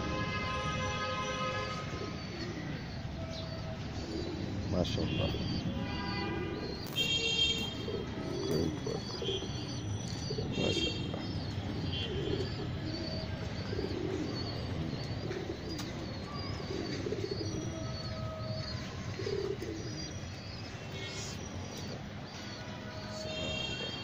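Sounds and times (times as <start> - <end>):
pigeon cooing: 1.6 - 24.0
small birds chirping: 1.6 - 24.0.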